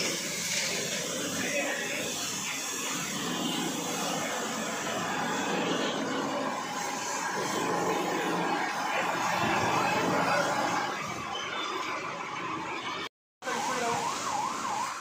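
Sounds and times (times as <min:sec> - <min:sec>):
sprayer pump and spray rushing: 0:00.0 - 0:10.9.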